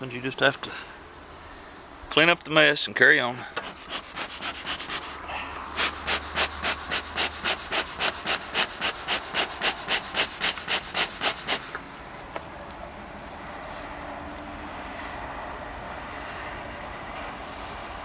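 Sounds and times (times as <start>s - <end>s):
bellows puffing air: 3.4s - 11.8s.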